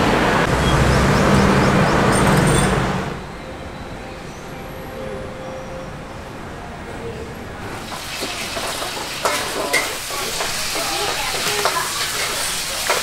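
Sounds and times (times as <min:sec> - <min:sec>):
food sizzling on charcoal stove: 0:07.8 - 0:13.0.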